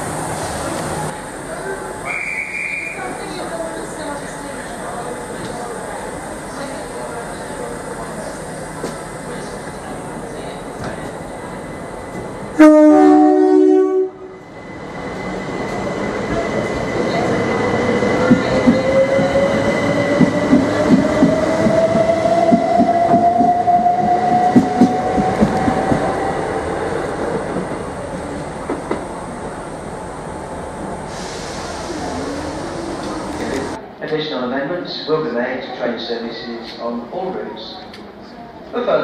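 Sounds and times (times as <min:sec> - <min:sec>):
two-tone train horn: 0:12.6 - 0:14.3.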